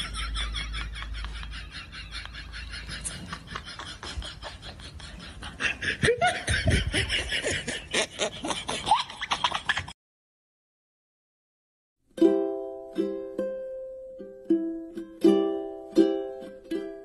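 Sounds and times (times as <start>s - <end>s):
person laughing: 0.0s - 10.0s.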